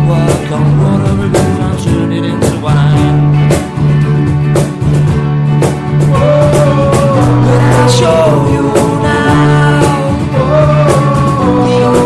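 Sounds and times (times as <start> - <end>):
live band playing: 0.0 - 12.0
sharp drum hits: 0.2 - 12.0.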